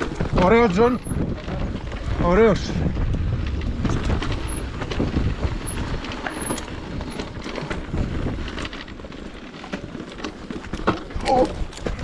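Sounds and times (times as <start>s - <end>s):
bike clicks and rattles: 0.0s - 12.0s
tyres crunching over stones: 3.1s - 12.0s.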